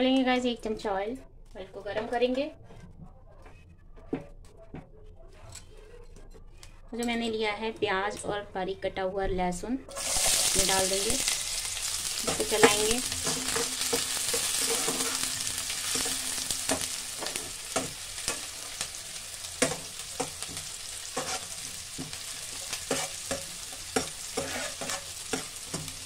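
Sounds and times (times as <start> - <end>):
onion and garlic sizzling in oil: 9.9 - 26.0
spatula scraping and tapping pan: 12.2 - 26.0.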